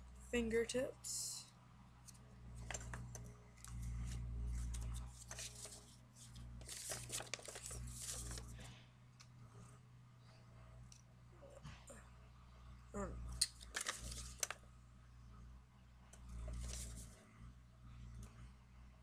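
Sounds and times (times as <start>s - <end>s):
paper rustling and crinkling: 3.6s - 8.7s, 13.6s - 14.6s, 16.5s - 17.2s.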